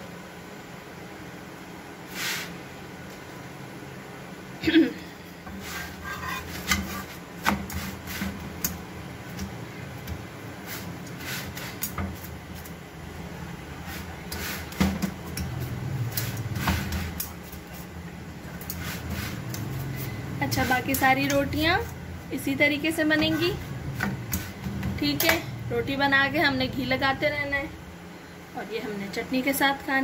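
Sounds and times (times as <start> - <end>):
low steady hum: 0.0 - 30.0
metal spatula scraping iron griddle: 5.5 - 8.4, 18.7 - 21.6.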